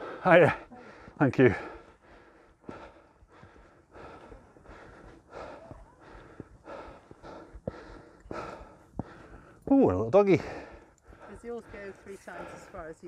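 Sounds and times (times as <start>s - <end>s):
person breathing hard: 0.0s - 9.7s, 10.4s - 12.9s
footsteps on rock: 7.2s - 10.0s.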